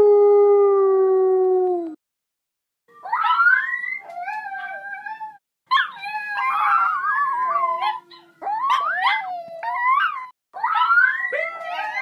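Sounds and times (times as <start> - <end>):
dog howling: 3.0 - 12.0.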